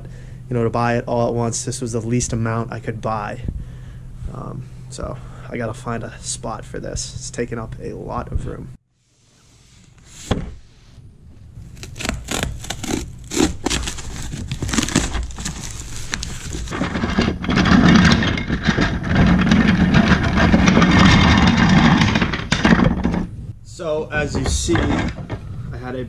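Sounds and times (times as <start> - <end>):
cardboard box tearing: 11.6 - 16.8
plastic parts clattering on wood: 13.8 - 23.3, 24.4 - 25.4.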